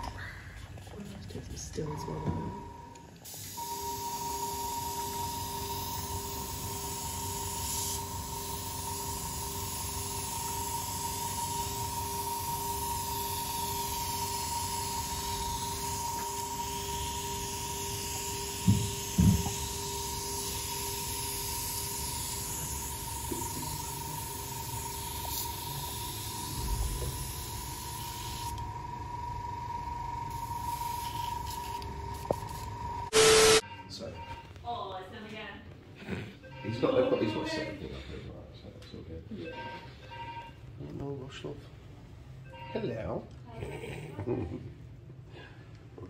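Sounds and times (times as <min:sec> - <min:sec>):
airbrush hissing: 0:03.3 - 0:28.6, 0:30.3 - 0:33.6
steady high tone: 0:19.7 - 0:34.4.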